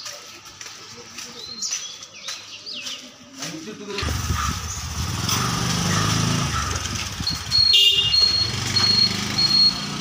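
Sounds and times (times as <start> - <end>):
vehicle engine running: 4.0 - 10.0
high electronic beeps: 7.2 - 10.0.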